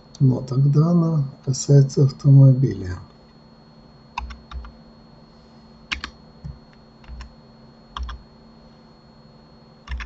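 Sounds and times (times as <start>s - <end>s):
faint steady hum: 0.0s - 10.0s
keyboard keystrokes: 4.2s - 4.7s, 5.9s - 7.3s, 8.0s - 8.2s.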